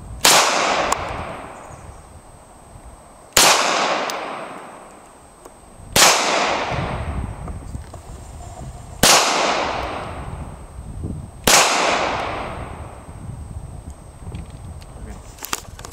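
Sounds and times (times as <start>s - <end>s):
pistol shots with echo: 0.2s - 1.6s, 3.4s - 4.9s, 6.0s - 7.1s, 9.0s - 10.3s, 11.5s - 12.8s.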